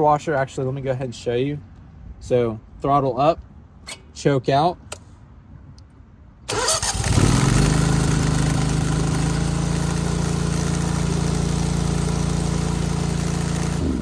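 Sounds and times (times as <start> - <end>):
engine running at full throttle: 6.7 - 14.0.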